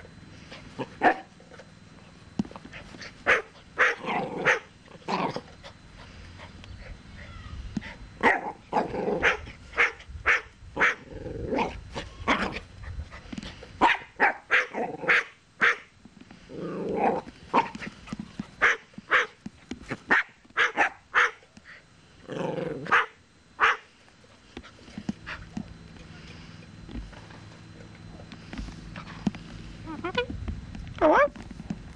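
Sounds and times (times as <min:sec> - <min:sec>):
cockatoo barking like a dog: 0:01.0 - 0:01.3, 0:03.2 - 0:05.4, 0:08.2 - 0:12.6, 0:13.8 - 0:15.9, 0:18.6 - 0:19.4, 0:20.1 - 0:21.4, 0:22.8 - 0:23.9.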